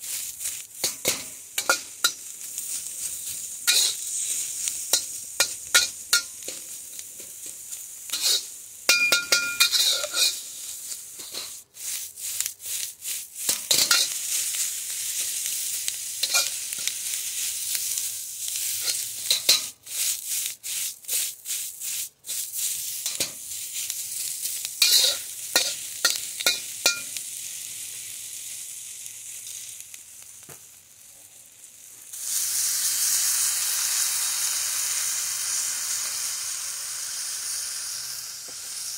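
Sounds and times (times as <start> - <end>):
metal spatula scraping a pan: 0.0 - 27.2
vegetables sizzling in a wok: 0.0 - 38.9.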